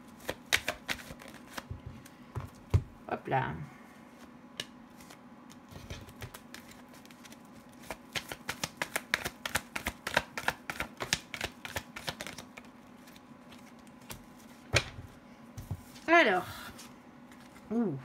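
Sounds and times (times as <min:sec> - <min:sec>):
cards being shuffled: 0:00.2 - 0:01.8, 0:04.9 - 0:15.0.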